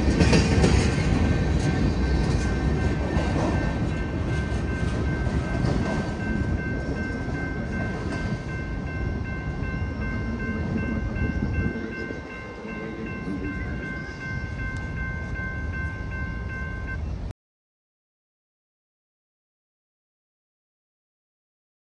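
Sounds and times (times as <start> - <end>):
freight train rumbling: 0.0 - 17.3.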